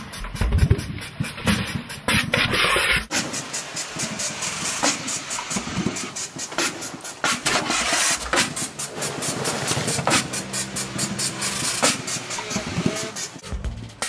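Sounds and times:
fountain water hissing: 3.1s - 13.4s.

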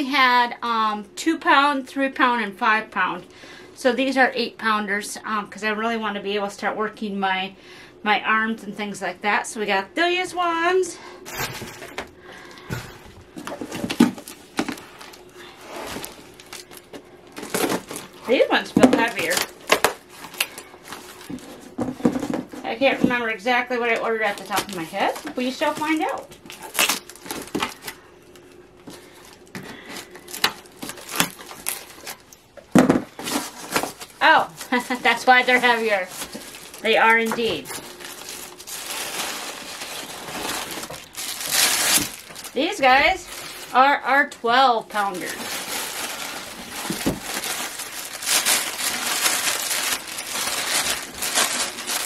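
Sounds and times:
cardboard crackling: 13.3s - 23.1s, 28.9s - 44.0s, 44.9s - 52.0s
plastic wrapping crinkling: 13.3s - 23.2s, 23.8s - 44.2s, 44.8s - 52.0s.

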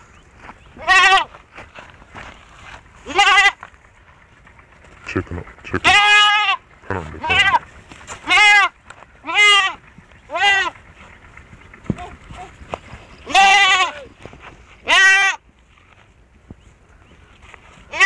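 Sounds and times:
young goat bleating: 0.8s - 1.4s, 3.0s - 3.7s, 5.7s - 10.8s, 13.2s - 14.2s, 14.8s - 15.4s.

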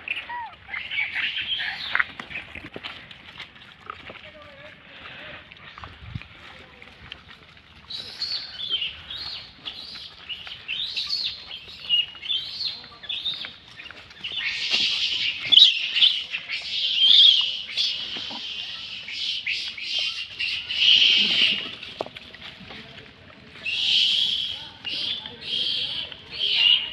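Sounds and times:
monkeys squealing and screeching: 0.0s - 2.5s, 7.9s - 21.9s, 23.6s - 26.9s.

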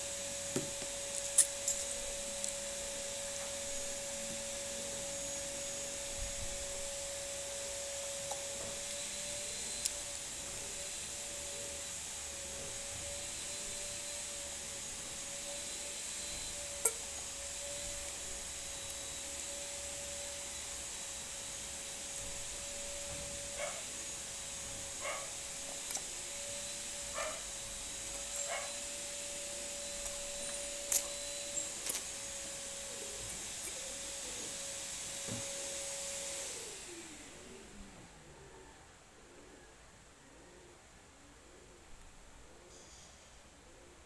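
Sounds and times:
steady hum: 0.0s - 34.7s
faint steady hum: 36.6s - 44.0s.

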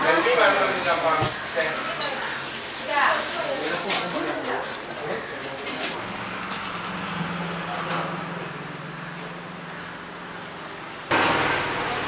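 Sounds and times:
vehicle engine humming: 6.0s - 12.0s.

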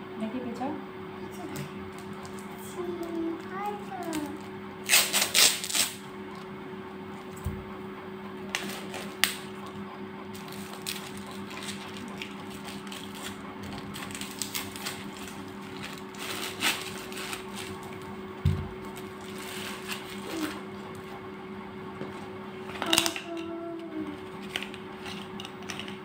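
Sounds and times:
steady hum: 0.0s - 26.0s
plastic wrapping crinkling and tearing: 4.0s - 6.0s, 10.4s - 17.9s.

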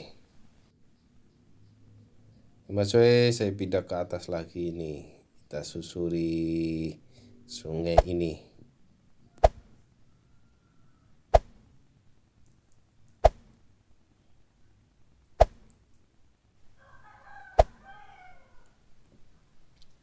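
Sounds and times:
faint rooster crowing: 9.2s - 11.3s, 16.7s - 18.9s.

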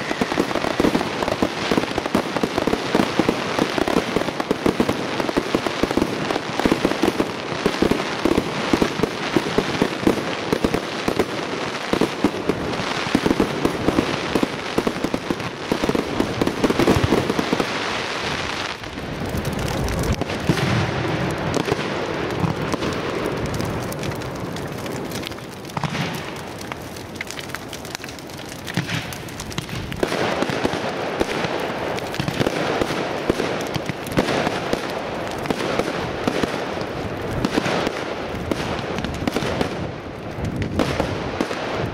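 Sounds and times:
firework crackling: 0.0s - 41.9s
deep firework booms: 19.0s - 25.1s.

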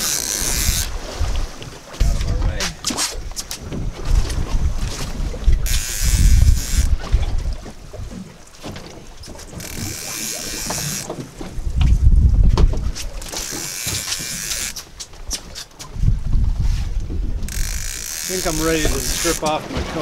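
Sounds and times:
fishing reel cranking: 0.0s - 1.0s, 5.6s - 7.0s, 9.5s - 11.1s, 13.0s - 14.9s, 17.5s - 19.6s.

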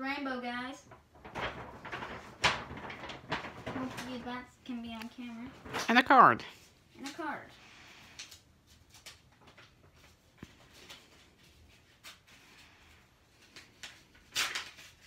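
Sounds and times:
paper envelope rustling: 1.1s - 4.5s, 8.2s - 15.0s.

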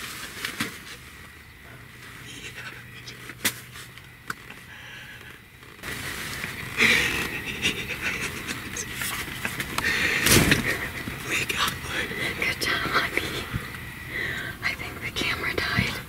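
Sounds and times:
breathy laughter: 6.7s - 11.1s
man panting heavily: 8.8s - 11.1s.

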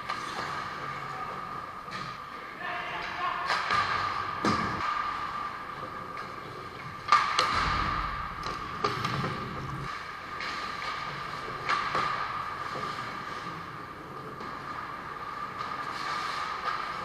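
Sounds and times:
hockey sticks and puck cracking: 0.0s - 17.0s
steady hum: 3.7s - 17.0s.

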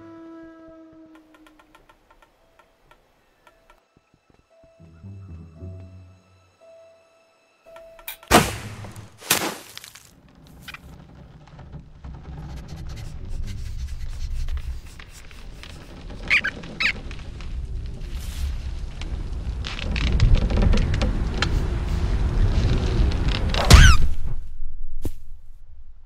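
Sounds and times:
faint music: 1.9s - 8.5s
sharp impacts: 8.0s - 10.1s, 23.6s - 26.0s
low rumbling: 10.2s - 26.0s
short squeaks: 10.4s - 17.6s, 23.6s - 24.2s.

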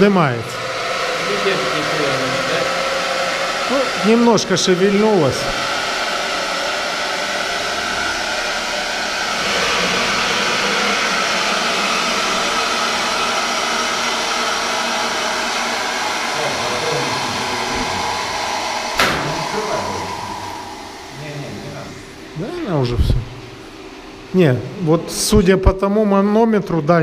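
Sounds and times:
water hissing through pipes: 0.0s - 25.3s
sharp knock: 19.0s - 19.5s.

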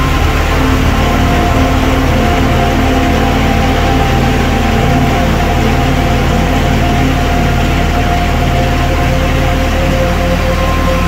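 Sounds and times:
heavy rain on metal roofs: 0.0s - 11.0s
low hum: 0.0s - 11.0s.

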